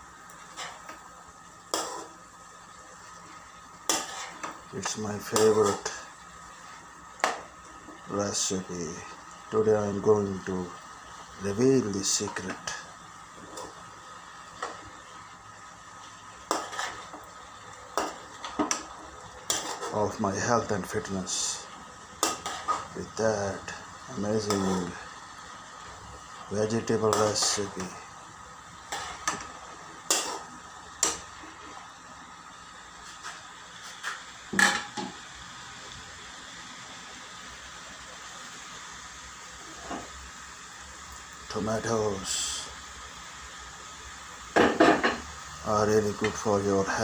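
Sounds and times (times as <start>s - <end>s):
faint steady hiss: 0.0s - 47.0s
vegetables stirred in pan: 0.0s - 47.0s
spatula scraping frying pan: 0.4s - 1.0s, 1.7s - 2.2s, 3.8s - 6.0s, 16.4s - 17.3s, 17.9s - 20.0s, 22.2s - 23.0s, 28.8s - 31.8s.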